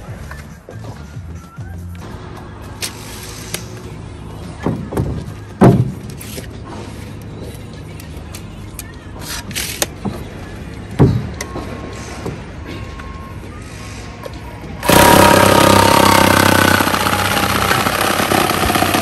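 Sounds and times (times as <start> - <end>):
concrete block thumps and knocks: 4.6 - 6.1, 11.0 - 11.4
tape measure clicks and rasp: 6.1 - 6.6, 7.9 - 10.0.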